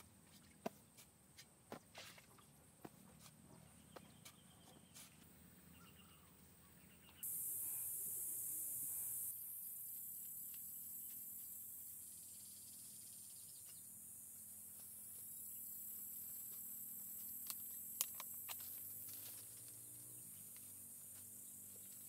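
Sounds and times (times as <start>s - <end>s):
high-pitched insect chorus: 7.2s - 22.0s.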